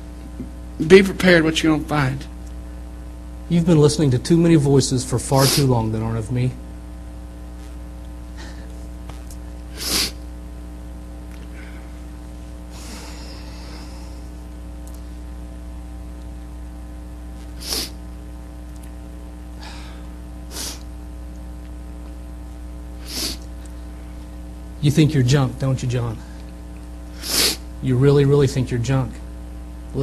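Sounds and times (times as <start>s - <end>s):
electrical mains hum: 0.0s - 30.0s
person puffing breath: 8.4s - 8.8s, 9.7s - 10.2s, 12.7s - 14.4s, 17.6s - 18.0s, 19.6s - 20.9s, 23.0s - 23.5s, 27.1s - 27.7s.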